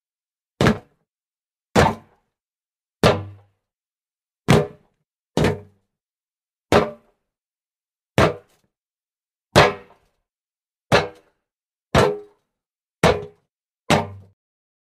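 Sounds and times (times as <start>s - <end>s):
feet landing on hollow wood: 0.6s - 0.9s.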